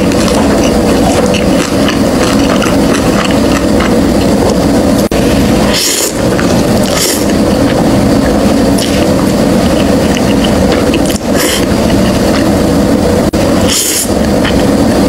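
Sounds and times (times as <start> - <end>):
noodles slurped: 0.0 - 4.6, 5.3 - 12.5
loud noisy rumble: 0.0 - 15.0.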